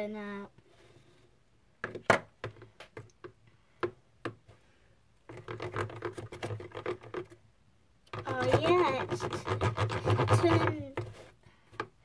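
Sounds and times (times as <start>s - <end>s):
pen tapping plastic tub: 5.3s - 7.4s, 8.1s - 11.2s.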